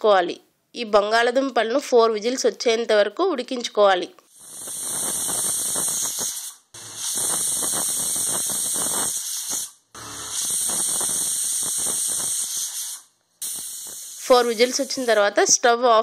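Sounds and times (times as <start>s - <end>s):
pressure cooker whistling: 4.3s - 15.3s
sputtering valve rattle: 4.3s - 15.3s.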